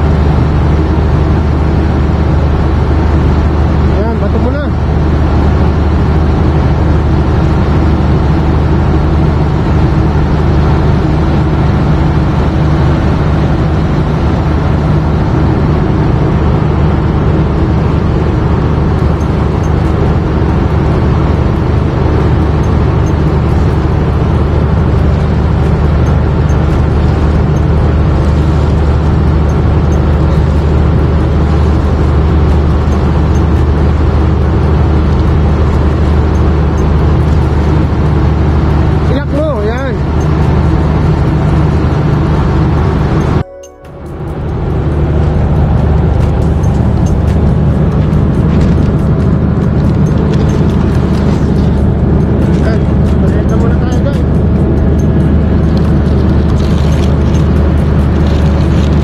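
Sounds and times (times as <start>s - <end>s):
low hum of running machinery: 0.0s - 59.0s.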